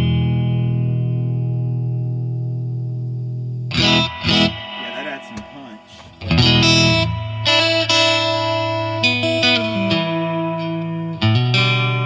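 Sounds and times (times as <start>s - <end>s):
electric guitar strumming chords: 3.7s - 12.0s.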